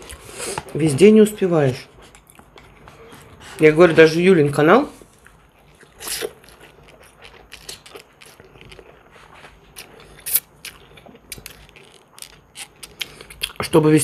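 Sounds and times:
chewing with wet mouth clicks: 5.2 - 13.7
noodle slurp: 5.8 - 13.2.

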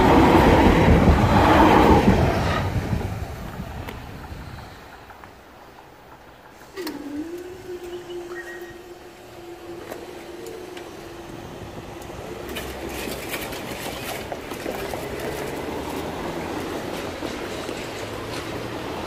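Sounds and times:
passing vehicles rush: 0.0 - 7.0, 9.2 - 19.0
crossing barrier motor humming: 6.5 - 18.9.

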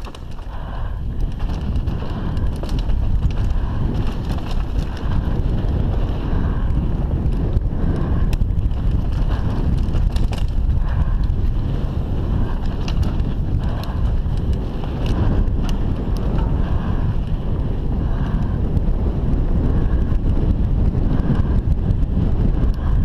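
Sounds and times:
tyres rumbling on dirt and stones: 0.0 - 17.6
bike clicks and rattles: 0.0 - 23.0
wind rush on microphone: 0.0 - 23.0.

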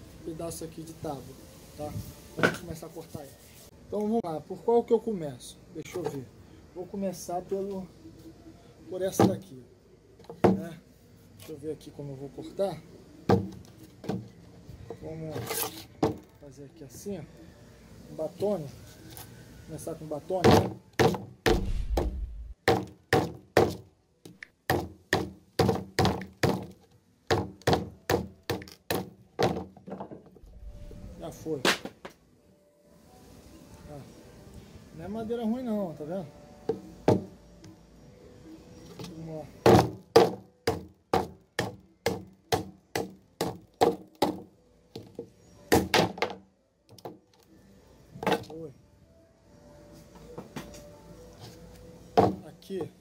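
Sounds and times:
baton striking knife into wood: 20.4 - 23.8.

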